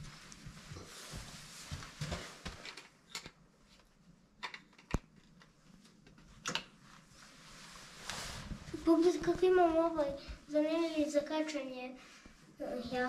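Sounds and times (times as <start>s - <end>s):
clothing rustling: 0.0s - 2.7s, 5.6s - 11.3s.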